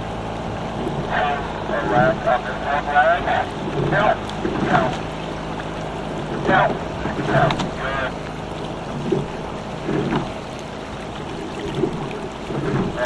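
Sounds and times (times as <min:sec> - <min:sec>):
water running along hull: 0:00.0 - 0:13.0
wind rumble on microphone: 0:00.0 - 0:13.0
oars squeaking in oarlocks: 0:00.7 - 0:05.1, 0:06.2 - 0:13.0.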